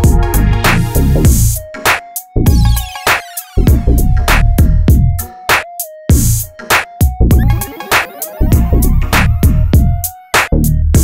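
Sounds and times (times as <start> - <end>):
electronic music with drum-machine beat: 0.0 - 11.0.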